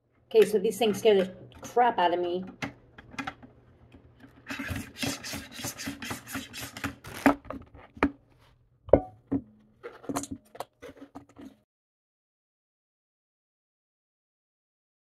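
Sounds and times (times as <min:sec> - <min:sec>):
mandoline slicer rasping strokes: 0:04.5 - 0:07.0.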